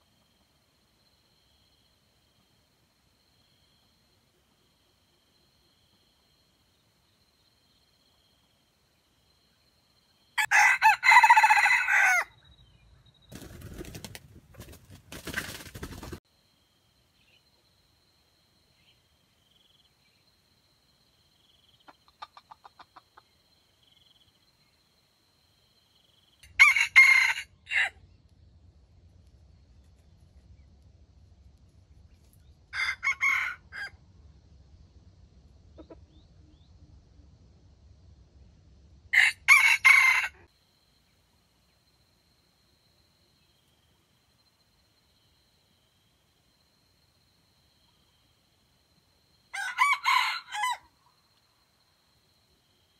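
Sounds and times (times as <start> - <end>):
rooster crowing: 10.4 - 12.4, 26.4 - 28.0, 32.7 - 34.0, 39.2 - 40.5, 49.5 - 51.0
soft clucking: 21.8 - 23.4, 35.7 - 36.3.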